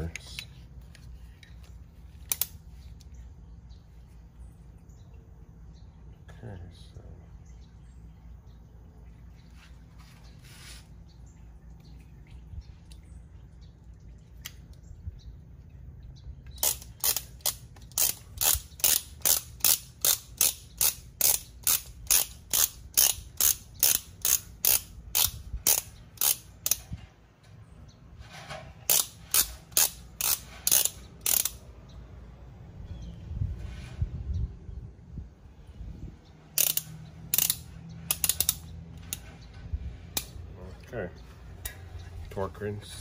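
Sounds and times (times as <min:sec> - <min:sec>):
torque wrench ratchet clicks: 0:02.3 - 0:02.6, 0:16.5 - 0:26.9, 0:28.9 - 0:31.6, 0:36.6 - 0:39.2.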